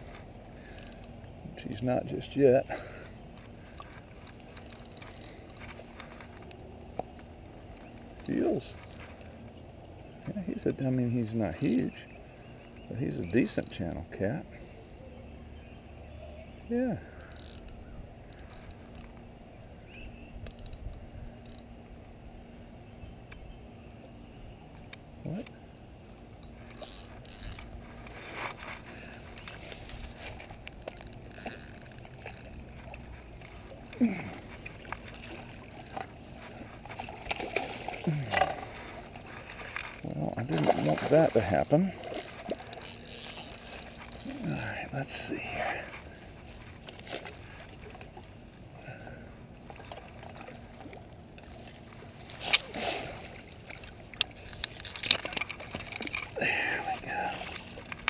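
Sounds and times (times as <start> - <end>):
fishing tackle clicks and scrapes: 0.0 - 9.5, 17.1 - 19.2, 20.4 - 21.7, 26.3 - 48.8, 49.7 - 58.0
rustling movement: 26.5 - 44.7, 45.8 - 48.7
water sloshing and splashing: 26.6 - 58.0.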